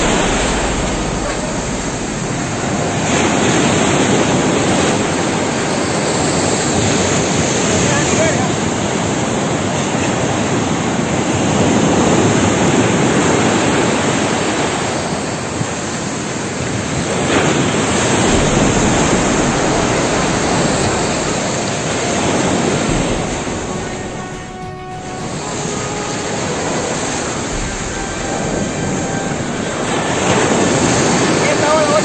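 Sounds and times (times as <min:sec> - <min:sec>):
ocean surf washing up beach: 0:00.0 - 0:32.0.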